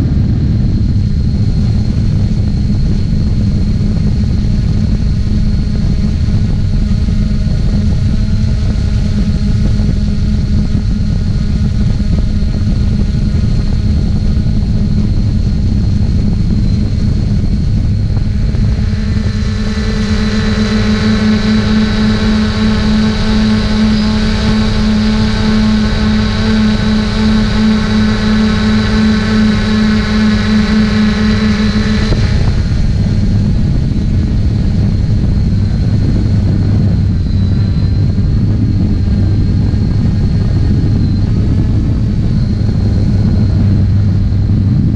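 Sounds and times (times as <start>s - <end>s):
drone motors humming and whining: 0.0s - 44.9s.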